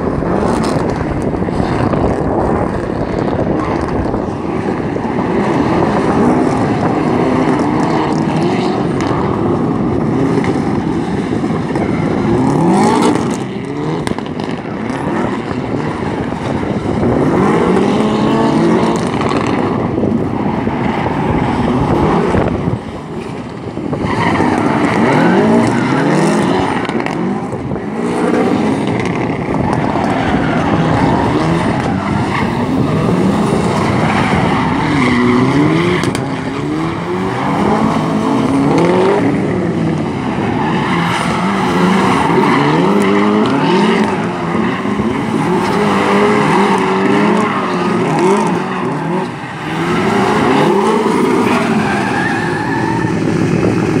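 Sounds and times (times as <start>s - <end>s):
car engine revving hard: 0.0s - 54.0s
tyre squeal: 40.5s - 53.4s.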